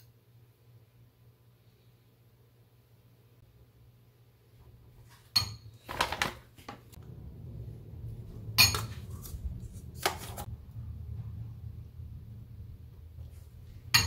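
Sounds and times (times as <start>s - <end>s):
low steady hum: 6.8s - 14.0s.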